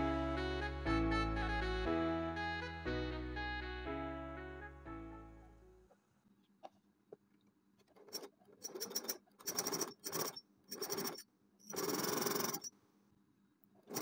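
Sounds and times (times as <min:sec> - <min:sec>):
electric sewing machine stitching: 0:08.0 - 0:12.7.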